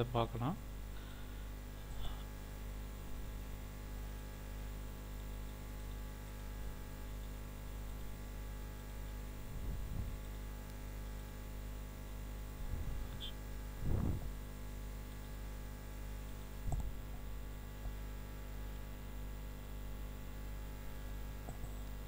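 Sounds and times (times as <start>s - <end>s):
electrical mains hum: 0.0s - 22.0s
soft low thumps: 9.5s - 10.2s, 12.6s - 14.4s.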